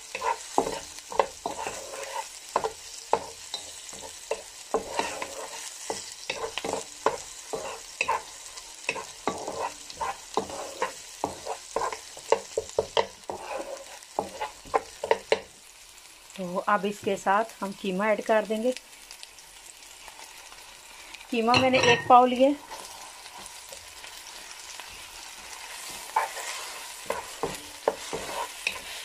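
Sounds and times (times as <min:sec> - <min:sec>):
wooden spatula scraping a pan: 0:00.0 - 0:15.4, 0:21.6 - 0:29.0
onion sizzling in hot oil: 0:00.0 - 0:29.0.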